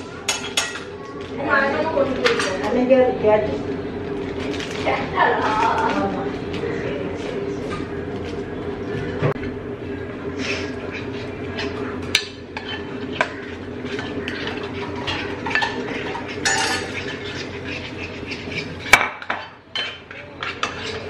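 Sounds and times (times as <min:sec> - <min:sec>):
steady hum: 0:00.0 - 0:21.0
stirring thick batter: 0:09.8 - 0:21.0
spoon clinking against bowl: 0:15.1 - 0:18.6.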